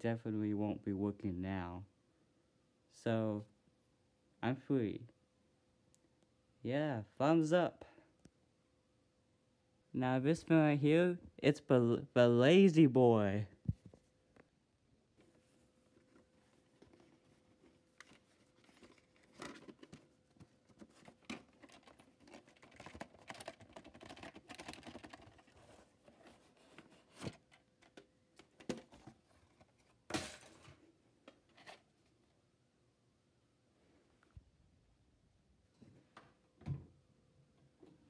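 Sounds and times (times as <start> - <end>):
cassette sleeve rustling and scraping: 15.2 - 30.7, 31.4 - 32.0.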